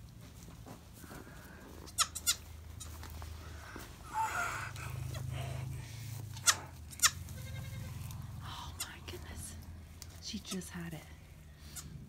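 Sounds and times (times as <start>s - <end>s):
rustle in straw: 5.9s - 8.4s
goats calling: 6.3s - 8.3s.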